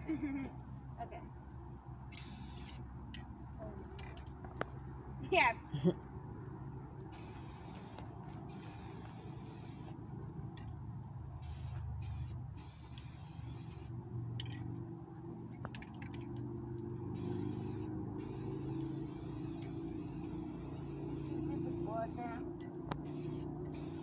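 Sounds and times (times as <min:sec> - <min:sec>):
spray paint can hissing: 0:02.2 - 0:02.8, 0:07.1 - 0:10.0, 0:11.4 - 0:13.9, 0:17.2 - 0:24.0.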